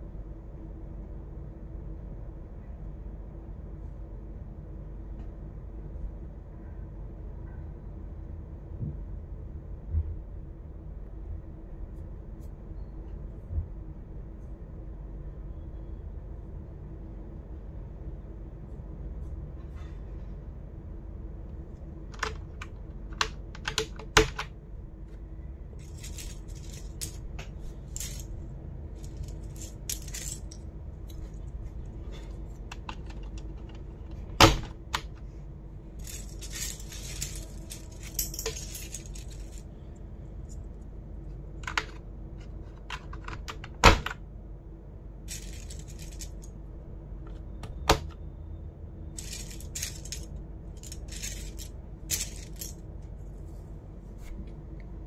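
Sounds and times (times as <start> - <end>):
plastic parts clicking and clattering: 22.1 - 24.5, 25.8 - 28.3, 29.0 - 35.2, 36.0 - 39.6, 41.6 - 44.2, 45.3 - 46.5, 49.2 - 52.8
scratchy rustling: 25.8 - 28.3, 28.9 - 33.9, 36.0 - 39.6, 45.3 - 46.5, 49.2 - 52.8.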